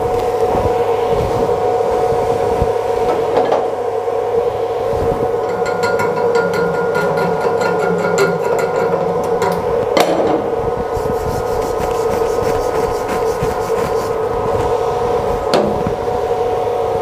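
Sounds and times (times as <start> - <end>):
steady background hum: 0.0 - 17.0
wire brush scrubbing metal: 5.4 - 9.9, 10.8 - 15.2.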